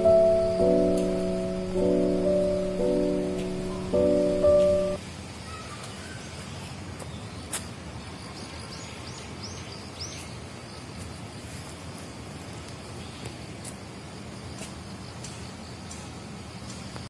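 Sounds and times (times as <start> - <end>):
piano music: 0.0 - 5.0
outdoor background noise: 0.0 - 17.0.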